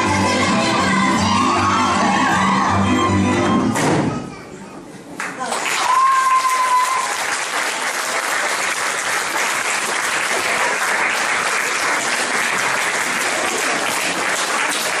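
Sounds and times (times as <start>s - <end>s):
audience clapping: 5.2s - 15.0s.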